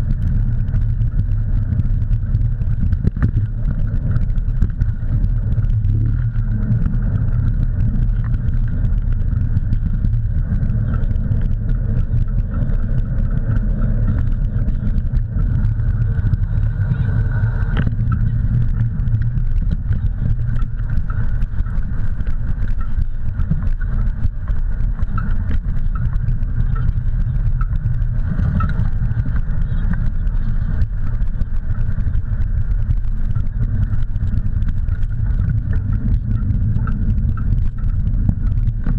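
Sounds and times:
gravel ticks: 0:00.0 - 0:38.9
wheels rolling over dirt trail: 0:00.0 - 0:38.9
wind buffeting microphone: 0:00.0 - 0:38.9.

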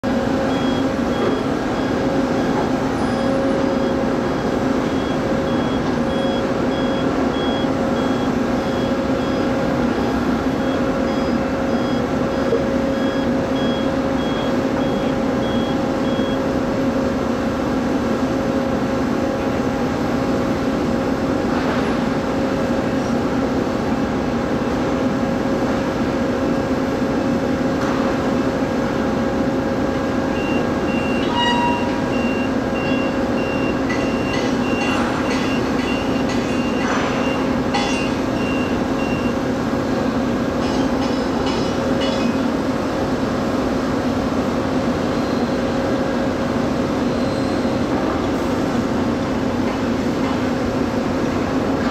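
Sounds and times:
heavy truck diesel engine droning: 0:00.0 - 0:20.7
high-pitched beeping alarm: 0:00.5 - 0:16.4, 0:30.4 - 0:39.4.

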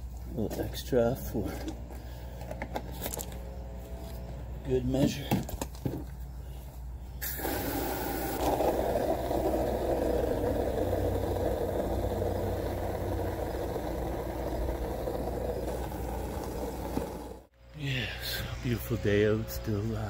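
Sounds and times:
low hum: 0:06.0 - 0:20.0
hose spraying into bucket: 0:07.2 - 0:09.8.

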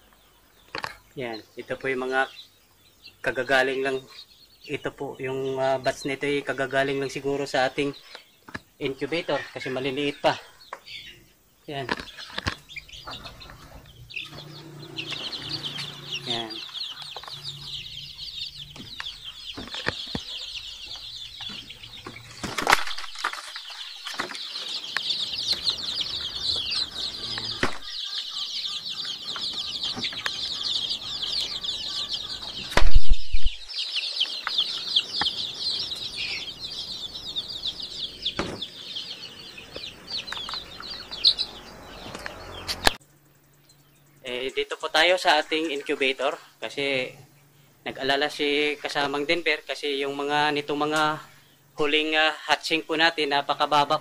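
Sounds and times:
chicks peeping: 0:00.0 - 0:54.0
loud thump: 0:38.3 - 0:38.7.

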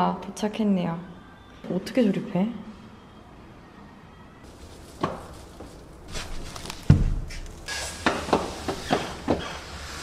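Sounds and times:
cardboard boxes being handled: 0:04.5 - 0:09.2.

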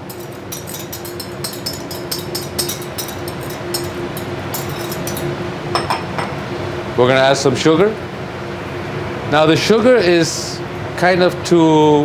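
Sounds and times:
utensil scraping against bowls: 0:00.0 - 0:05.4
steady low hum: 0:00.0 - 0:09.4.

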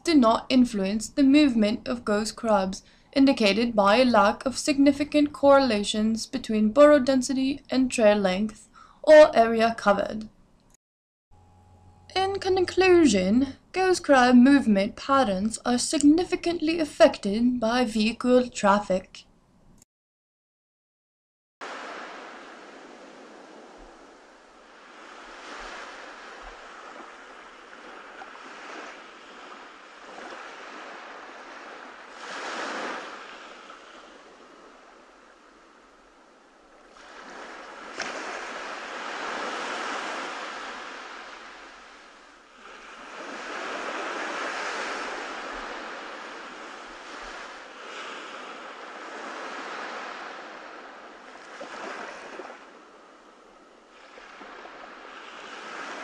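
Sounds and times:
ocean surf washing ashore: 0:21.6 - 0:56.0.

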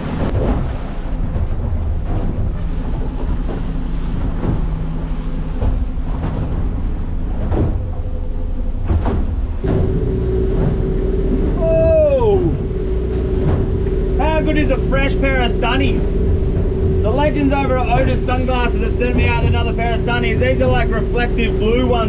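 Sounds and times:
boat engine running: 0:00.0 - 0:22.0
hull knocking over waves: 0:00.0 - 0:22.0
steady higher tone: 0:07.1 - 0:22.0
downward sweeping pitched sound: 0:09.6 - 0:22.0.

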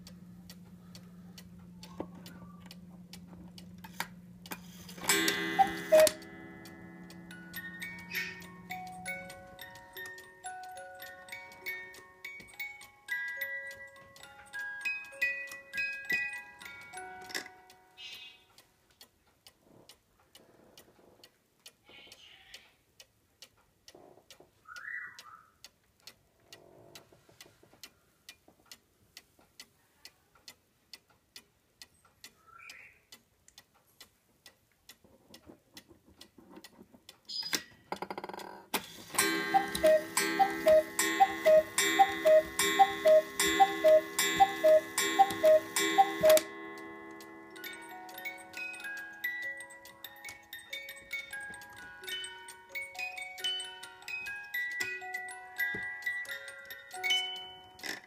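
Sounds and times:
clock mechanism whirring: 0:00.0 - 0:13.5, 0:38.8 - 0:50.5
cuckoo clock calling: 0:00.0 - 0:18.8, 0:38.8 - 0:58.0
clock ticking: 0:00.0 - 0:21.8, 0:22.5 - 0:26.3, 0:27.8 - 0:58.0.

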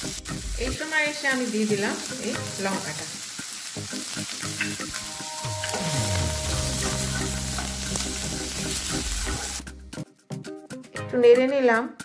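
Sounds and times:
vegetables sizzling in hot fat: 0:00.0 - 0:09.7.

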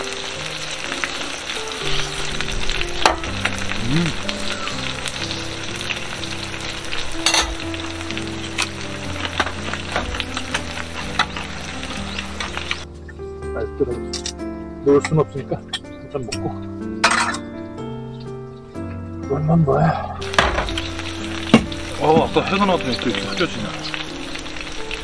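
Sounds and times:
pork sizzling in a grill pan: 0:00.0 - 0:12.9, 0:20.2 - 0:25.0.

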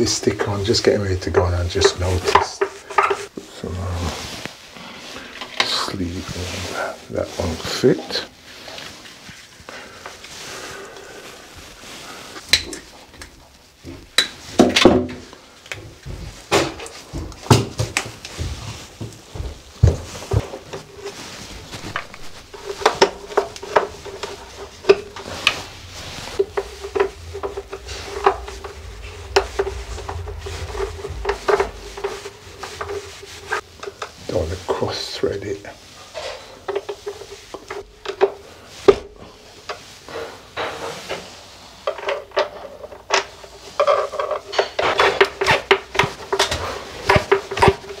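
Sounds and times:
hands handling cable: 0:15.6 - 0:34.1.

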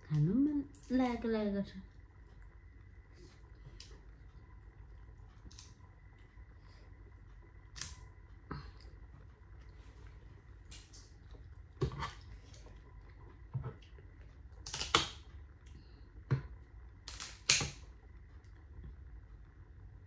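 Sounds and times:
seafood shells cracking: 0:14.6 - 0:15.2, 0:17.0 - 0:17.8.

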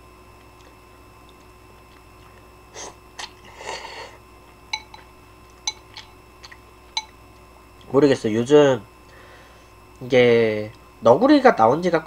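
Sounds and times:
chewing noises: 0:00.4 - 0:02.5, 0:04.4 - 0:07.9
chopsticks clicking on bowl: 0:04.8 - 0:07.9.

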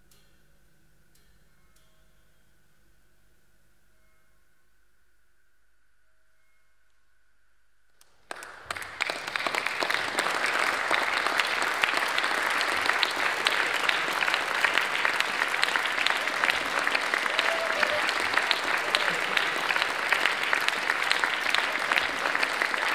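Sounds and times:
audience applause: 0:08.2 - 0:22.9.

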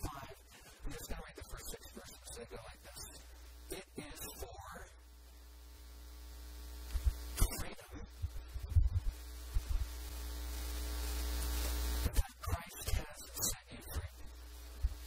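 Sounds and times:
electrical mains hum: 0:00.0 - 0:15.0
low thumps: 0:08.2 - 0:09.9.

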